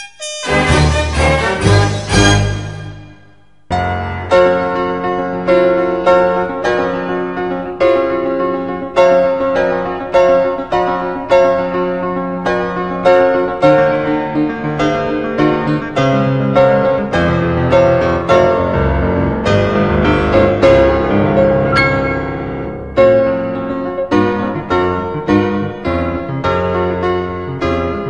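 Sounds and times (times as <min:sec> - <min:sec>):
piano music: 0:00.0 - 0:28.0.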